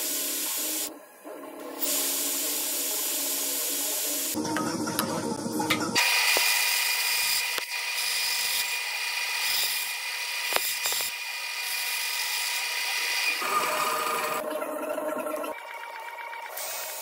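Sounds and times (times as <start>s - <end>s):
bandsaw cutting plastic: 6.2s - 14.3s.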